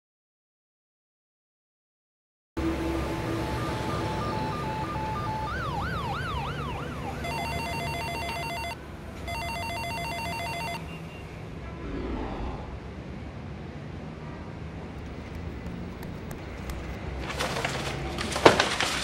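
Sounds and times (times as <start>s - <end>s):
siren wailing: 2.6s - 10.8s
electronic telephone ringing: 7.1s - 10.8s.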